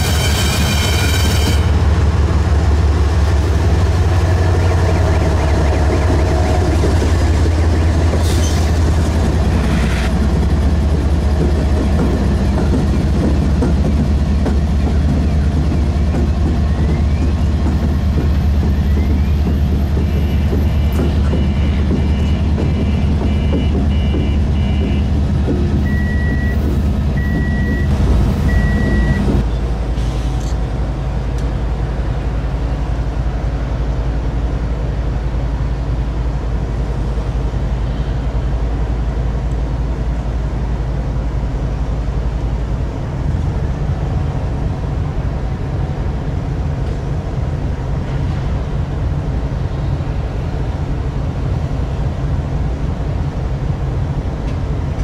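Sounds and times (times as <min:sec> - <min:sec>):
locomotive diesel engine running: 0:00.0 - 0:55.0
electronic beeps: 0:04.5 - 0:08.8.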